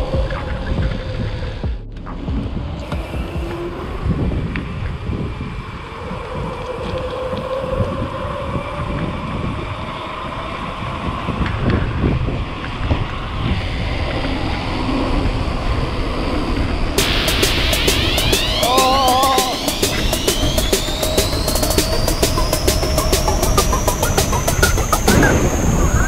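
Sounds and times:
wind buffeting microphone: 0.0s - 17.3s, 19.6s - 26.0s
faint whining tones: 0.0s - 26.0s
bright hissing: 17.0s - 26.0s.

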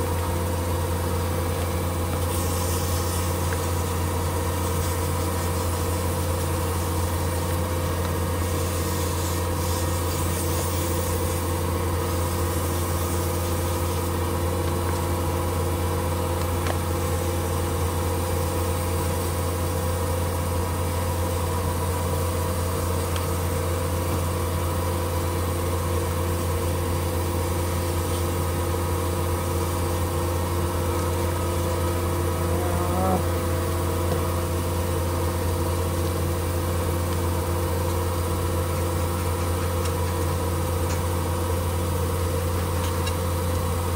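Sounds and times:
sandpaper on spinning metal: 8.3s - 14.1s.

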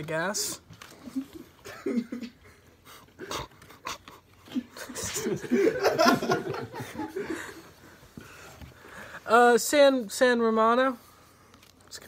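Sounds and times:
men laughing: 1.0s - 3.8s, 4.4s - 8.0s.

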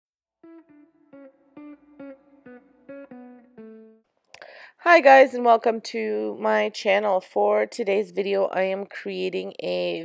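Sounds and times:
plucked note melody: 0.4s - 4.0s.

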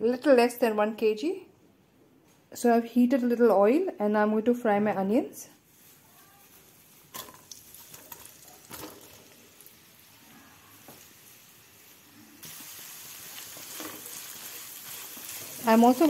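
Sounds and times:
onions sizzling in oil: 5.7s - 16.0s
hot oil crackling and popping: 6.8s - 16.0s.

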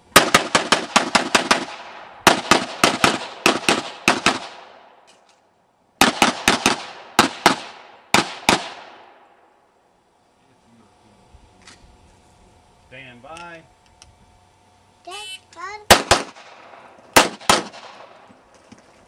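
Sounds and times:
pistol shots with echo: 0.2s - 5.0s, 6.0s - 9.2s, 15.9s - 18.2s.

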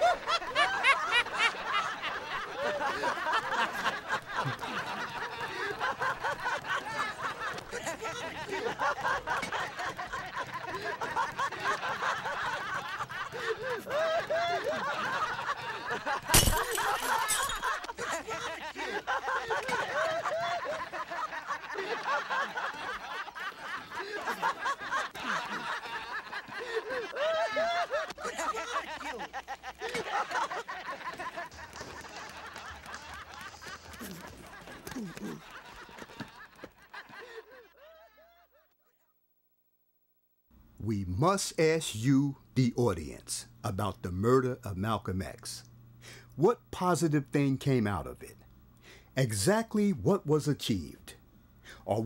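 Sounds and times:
men laughing and snickering: 0.0s - 38.5s.

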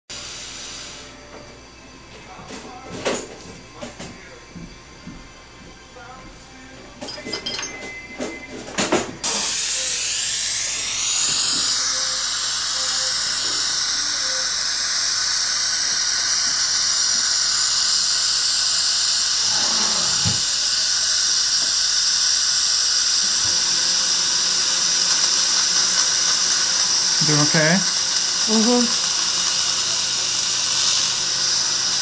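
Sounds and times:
dental drill whine: 9.2s - 32.0s
surgical suction hiss: 9.2s - 32.0s.

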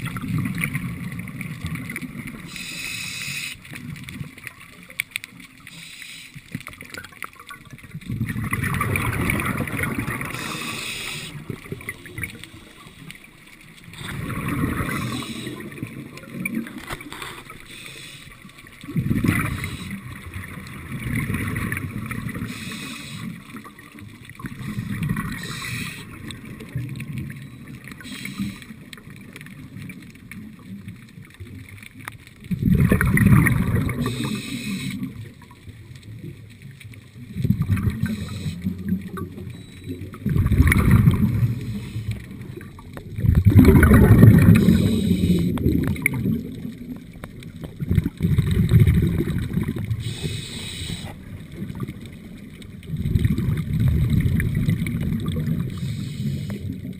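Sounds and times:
regulator bubbling underwater: 0.0s - 56.9s
water noise: 0.0s - 56.9s.

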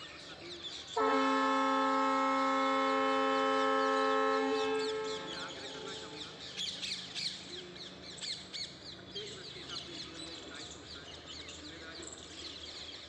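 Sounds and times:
birds chirping and squawking: 3.3s - 13.0s.

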